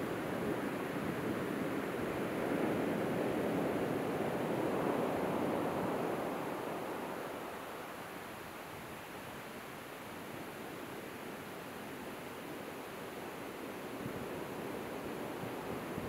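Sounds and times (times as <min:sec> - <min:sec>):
waves washing up a beach: 0:00.0 - 0:16.0.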